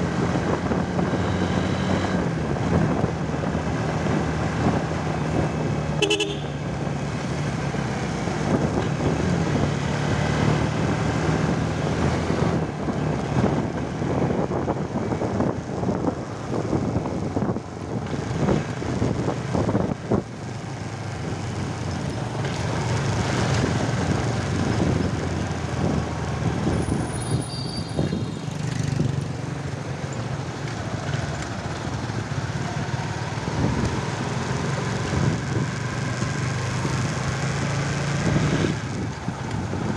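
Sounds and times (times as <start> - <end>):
street traffic: 0.0 - 39.9
wind and road noise: 0.0 - 39.9
short horn toot: 6.0 - 6.6.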